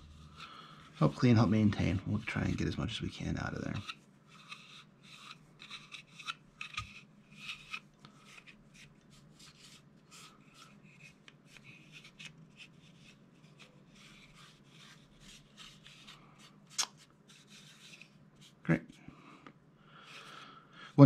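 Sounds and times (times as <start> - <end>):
cloth scrubbing plastic: 1.0 - 2.7.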